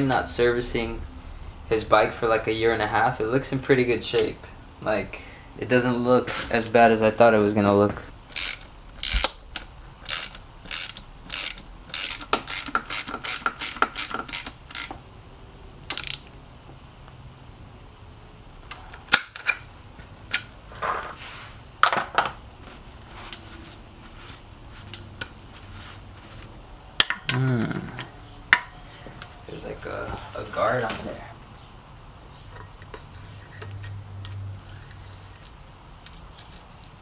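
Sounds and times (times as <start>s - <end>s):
ratchet wrench clicking: 8.3s - 15.0s, 15.9s - 16.3s.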